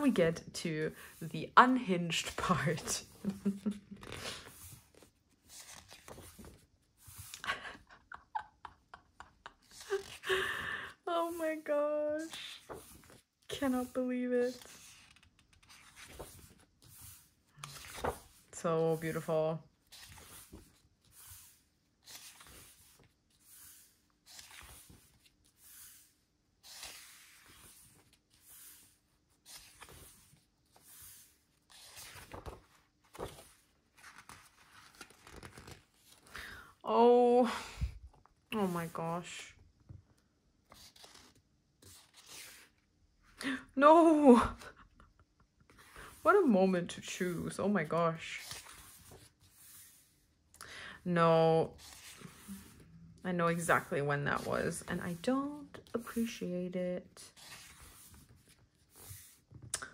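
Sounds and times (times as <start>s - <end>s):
book pages turning: 1.7s - 7.5s, 9.2s - 10.3s, 11.3s - 36.6s, 39.8s - 42.8s, 45.7s - 50.2s, 51.6s - 52.9s, 57.3s - 59.9s.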